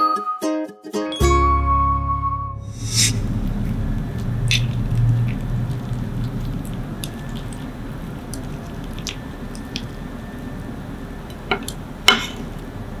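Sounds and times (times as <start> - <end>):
soft squishes and crackles: 3.4 - 12.8.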